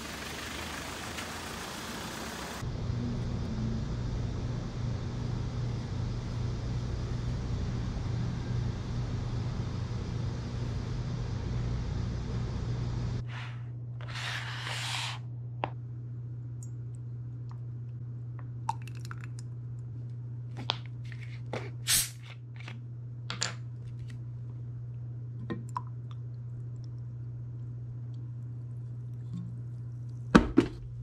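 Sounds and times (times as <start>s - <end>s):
outdoor noise: 0.0s - 13.3s
low hum: 0.0s - 31.0s.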